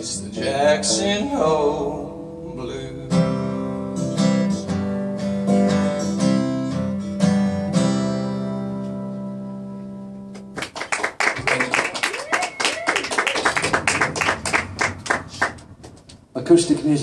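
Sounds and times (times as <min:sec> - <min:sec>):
acoustic guitar strumming: 0:00.0 - 0:10.6, 0:13.5 - 0:16.4
applause: 0:10.4 - 0:16.0.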